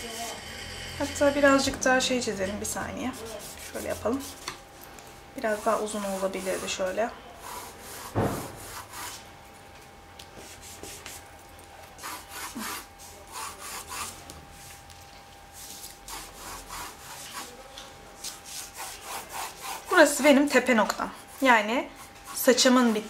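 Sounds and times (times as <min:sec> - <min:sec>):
pencil scratching on paper: 0:03.1 - 0:04.4, 0:05.5 - 0:06.8, 0:07.4 - 0:09.2, 0:12.0 - 0:14.2, 0:15.6 - 0:17.6, 0:18.2 - 0:20.3, 0:21.2 - 0:23.0.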